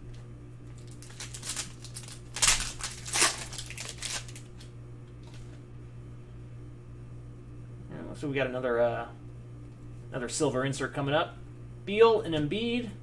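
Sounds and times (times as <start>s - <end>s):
plastic wrapper crinkling and tearing: 0.8s - 4.7s.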